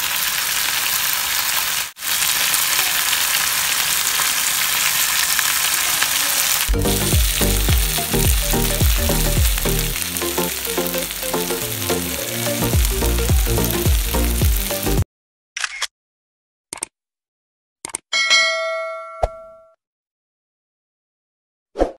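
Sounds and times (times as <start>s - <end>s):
food sizzling in frying pan: 0.0s - 15.0s
rhythmic background music: 6.7s - 15.0s
short clicks: 16.7s - 16.9s, 17.8s - 18.0s
bell ding: 18.1s - 19.8s.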